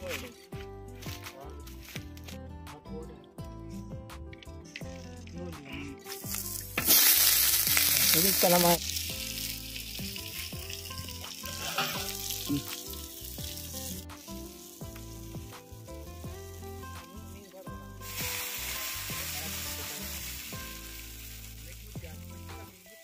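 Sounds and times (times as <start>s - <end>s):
fish sizzling in oil: 6.0s - 23.0s.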